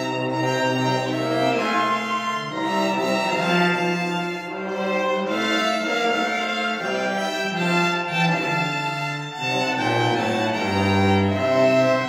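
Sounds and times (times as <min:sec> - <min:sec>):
slow bowed string music: 0:00.0 - 0:12.0.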